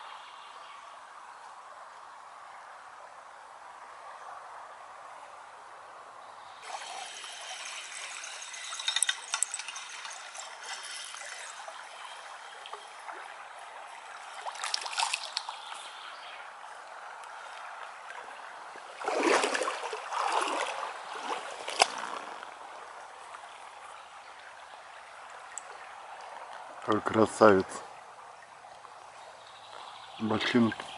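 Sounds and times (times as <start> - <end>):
flowing water trickling: 6.4 - 30.9
fish splashing in river: 14.1 - 15.7, 18.9 - 22.4.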